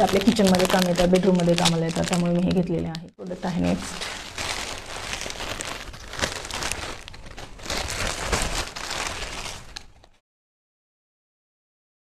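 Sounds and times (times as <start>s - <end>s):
plastic bag crinkling: 0.0s - 10.2s
plastic crackles: 0.0s - 10.2s.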